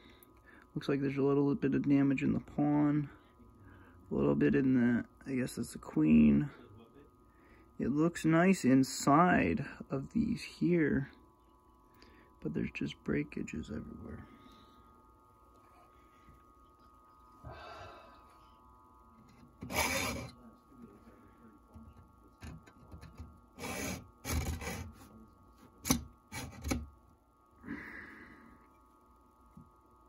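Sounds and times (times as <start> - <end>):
person sighing: 17.4 - 18.4, 27.6 - 28.6
hacksaw cutting metal: 19.6 - 20.3.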